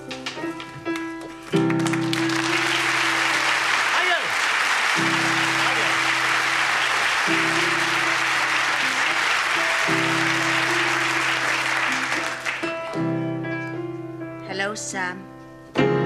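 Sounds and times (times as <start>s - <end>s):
audience applause: 1.0s - 13.0s.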